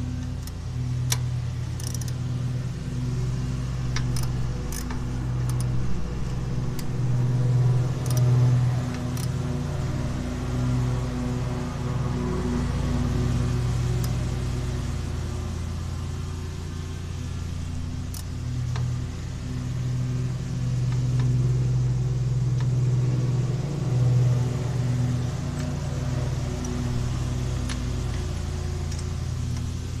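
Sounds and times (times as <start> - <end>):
engine droning: 0.0 - 30.0
light clicks and taps: 18.1 - 19.0.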